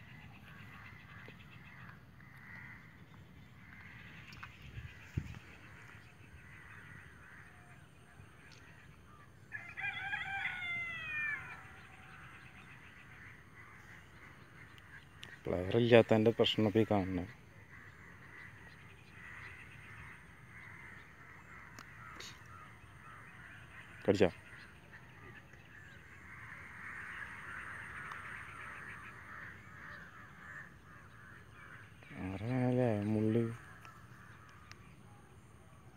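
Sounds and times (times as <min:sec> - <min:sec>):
rooster crowing: 0:09.5 - 0:11.8.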